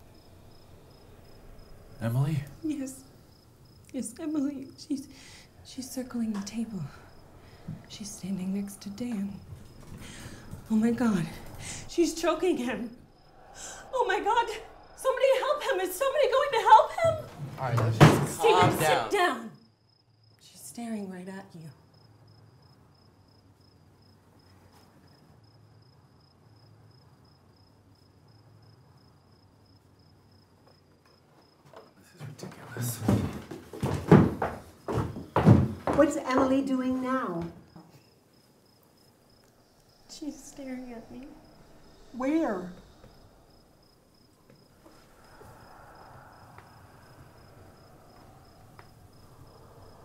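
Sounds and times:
low room hum: 0:00.0 - 0:33.7, 0:36.0 - 0:50.0
cricket chirping: 0:00.0 - 0:50.0
low hum: 0:04.8 - 0:17.5.

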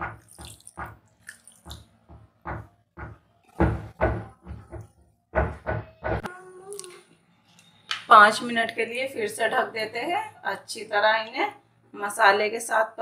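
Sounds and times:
water poured into a pan: 0:00.1 - 0:01.9.

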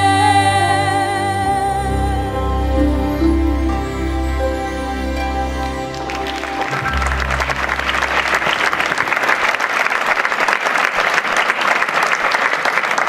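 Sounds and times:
low music note: 0:02.3 - 0:09.4
audience applauding: 0:05.1 - 0:13.0.

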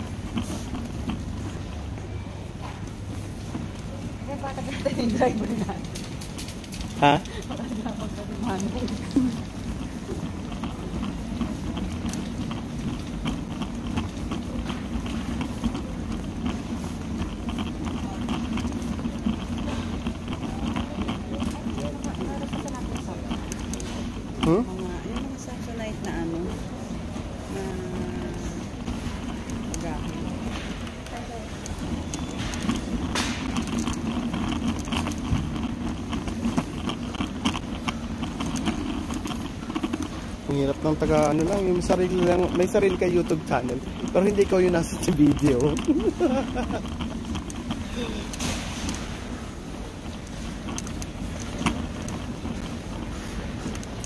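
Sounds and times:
shopping trolley rattling: 0:00.0 - 0:01.7, 0:02.4 - 0:54.0
faint shoppers' voices: 0:00.0 - 0:54.0
steady low hum: 0:00.0 - 0:54.0
small clatters: 0:02.6 - 0:54.0.

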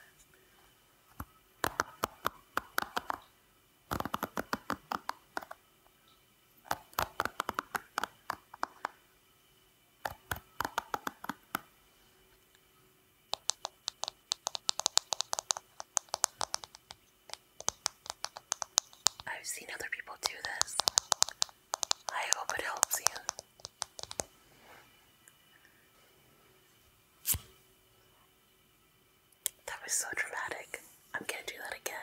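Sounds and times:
fingertips flicking hairbrush bristles: 0:13.3 - 0:19.3, 0:20.3 - 0:24.3.

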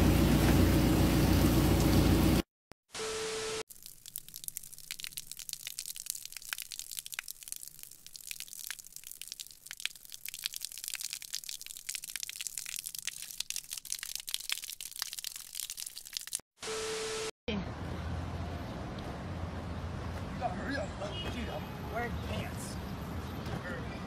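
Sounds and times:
fuel splashing on pavement: 0:03.7 - 0:16.4.

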